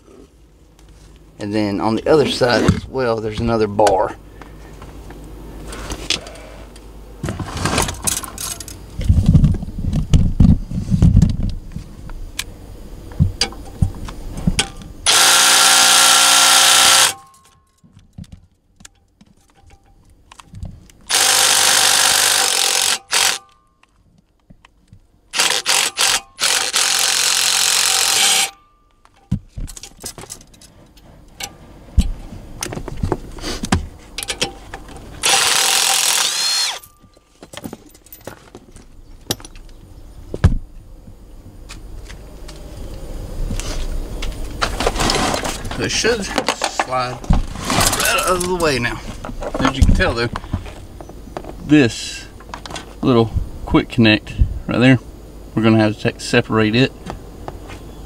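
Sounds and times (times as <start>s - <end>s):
cordless driver running: 15.1s - 17.2s, 21.1s - 23.5s, 25.4s - 28.6s, 35.2s - 36.8s.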